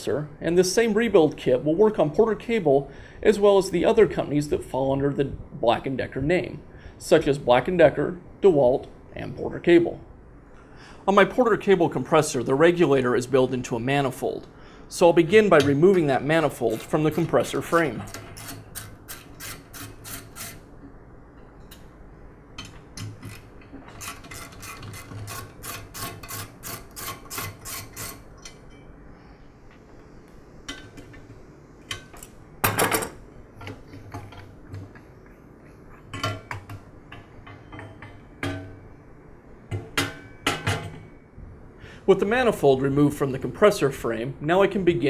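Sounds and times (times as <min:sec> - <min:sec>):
metal knocks and clanks: 0:39.7 - 0:41.1.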